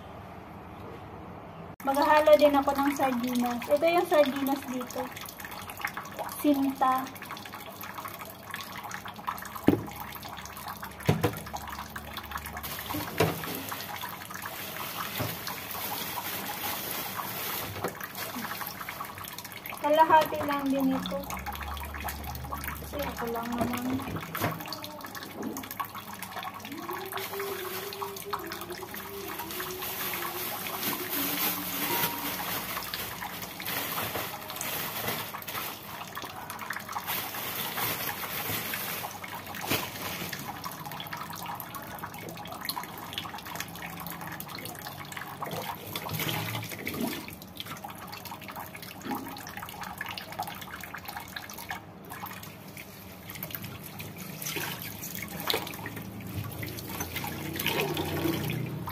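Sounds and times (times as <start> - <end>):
water running from tap: 1.8 - 58.9.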